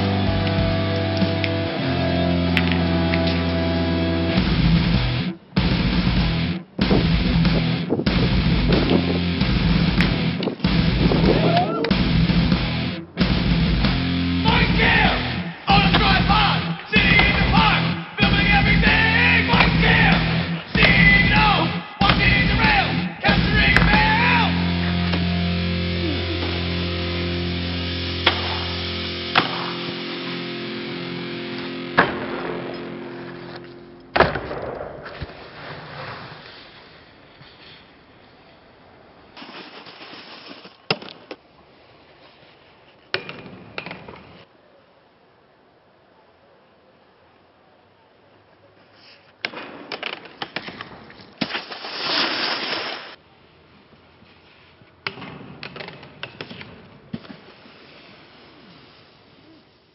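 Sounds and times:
background music: 0.0 - 34.8
snowboard scraping slide: 35.0 - 38.3, 39.4 - 40.8, 51.7 - 53.2, 57.2 - 59.9.

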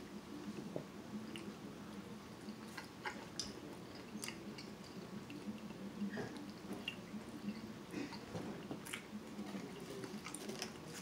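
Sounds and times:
person chewing food: 2.4 - 11.0.

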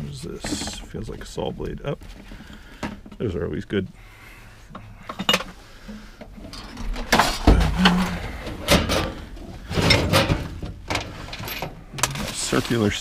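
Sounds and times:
tools rummaged knocking and clanking: 0.1 - 1.3, 2.0 - 3.4, 4.7 - 12.5.

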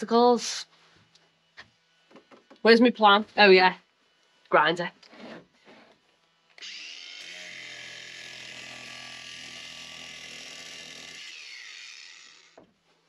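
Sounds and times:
angle grinder high whine: 6.6 - 12.6.

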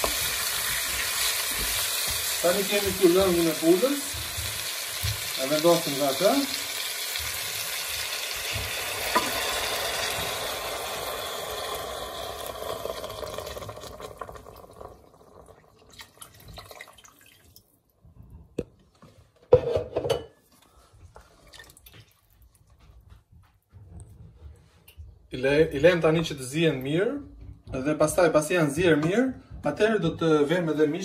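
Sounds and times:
broth sizzling in hot pot: 0.0 - 15.7.

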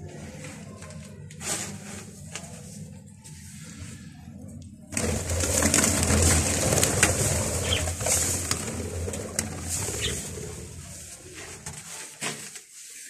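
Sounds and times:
dense rustling noise: 0.0 - 4.0, 4.9 - 13.0
budgerigars chattering and chirping: 10.0 - 10.3.

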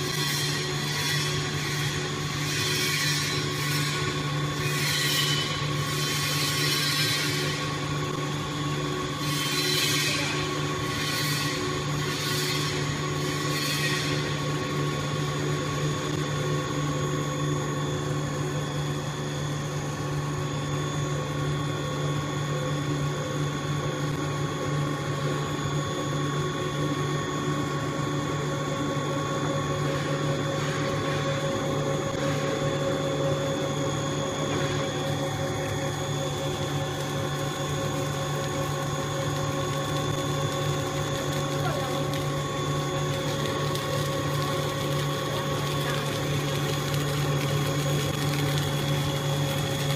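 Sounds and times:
machine hum with high tones: 0.0 - 49.9.

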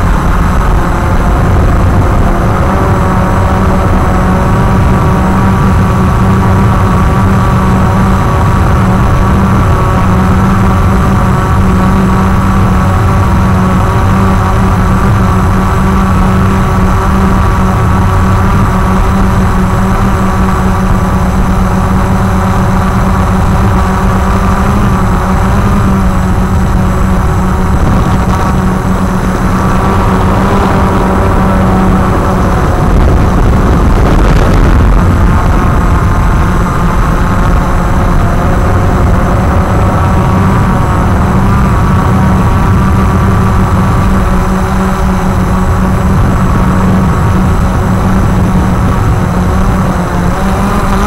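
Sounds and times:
quadcopter motors humming: 0.0 - 51.0.

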